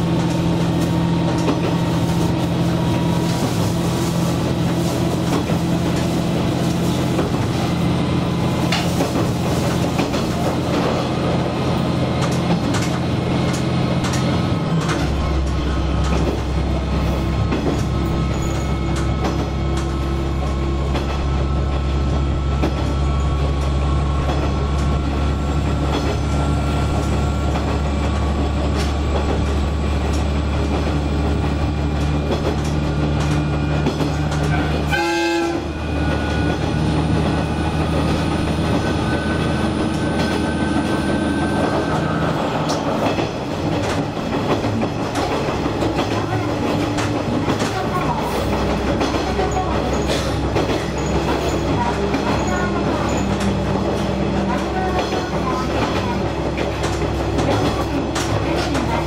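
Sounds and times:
railcar engine drone: 0.0 - 59.0
wheels clicking over rail joints: 42.6 - 59.0.

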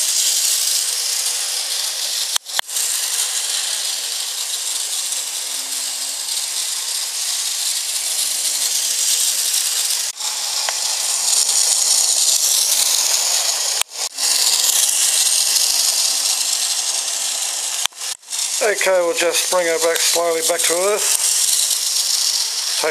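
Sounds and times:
high-pitched electric motor whir: 0.0 - 22.9.

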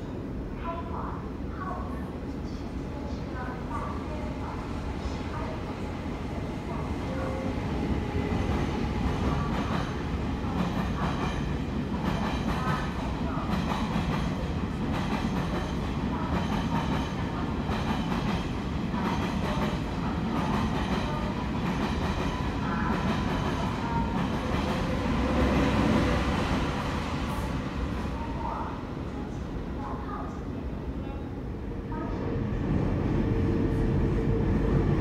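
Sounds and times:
train rumble: 2.5 - 30.6.

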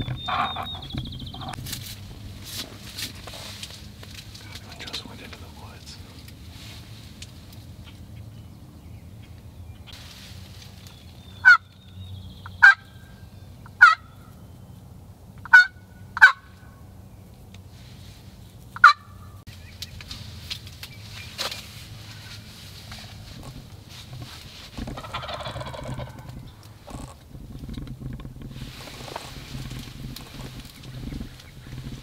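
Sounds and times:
turkey gobbling: 0.0 - 1.6, 11.4 - 11.7, 12.5 - 12.9, 13.8 - 14.1, 15.4 - 16.6, 18.8 - 19.2, 24.8 - 26.6.

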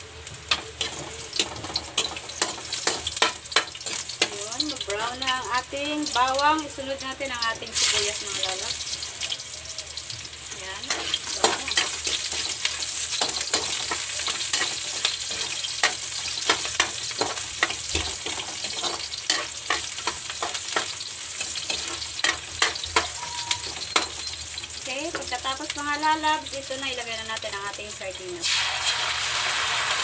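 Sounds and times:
onion sizzling in hot oil: 0.0 - 30.0
spatula scraping metal pan: 13.2 - 24.1.

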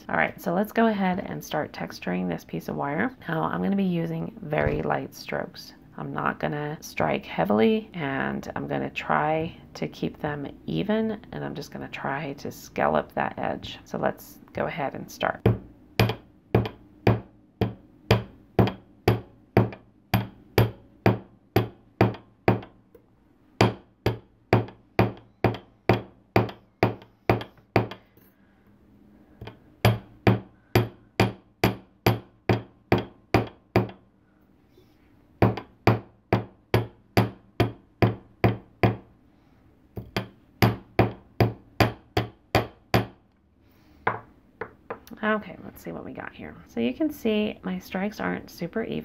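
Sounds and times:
hammer tapping on metal: 15.5 - 22.7, 23.6 - 28.0, 44.1 - 45.1.

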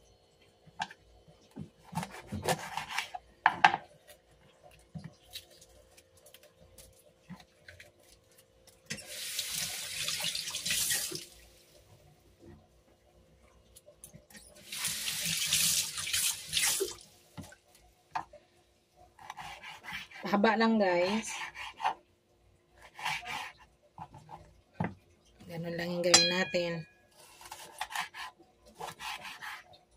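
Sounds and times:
tap water running: 8.9 - 11.7, 14.3 - 17.6.

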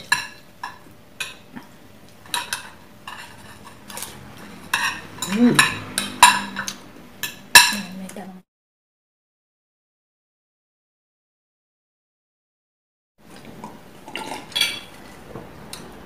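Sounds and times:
cutlery clinking on ceramic plates: 0.0 - 7.9, 14.1 - 15.2.

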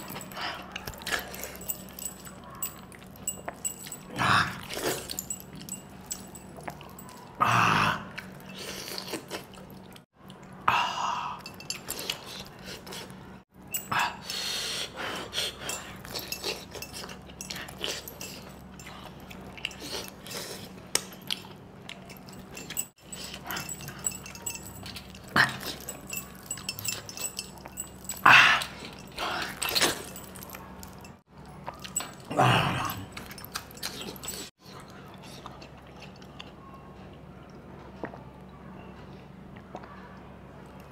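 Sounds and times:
wet chewing and lip-smacking: 4.7 - 7.4, 8.1 - 10.6, 15.2 - 32.3, 33.0 - 36.7.

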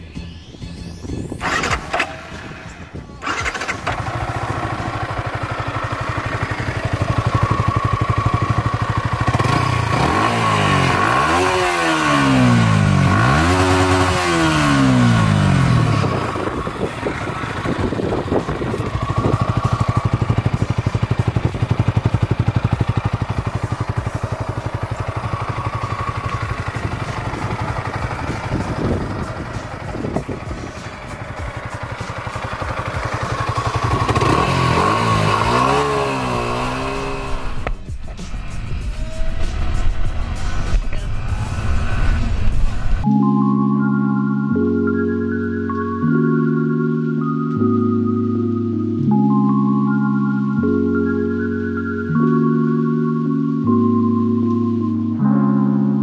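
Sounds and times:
motorcycle engine idling and revving: 1.0 - 43.1.

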